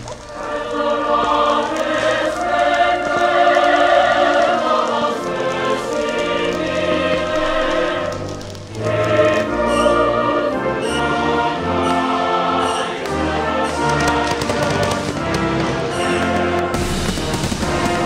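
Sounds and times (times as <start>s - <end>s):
choir singing held notes: 0.0s - 18.0s.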